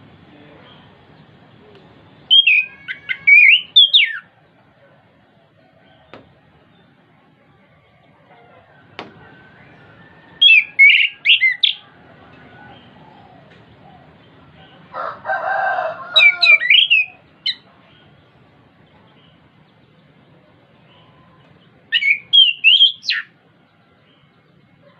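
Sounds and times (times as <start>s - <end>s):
thrush whistled song: 2.3s - 4.3s, 9.2s - 11.8s, 16.2s - 17.6s, 21.9s - 23.3s.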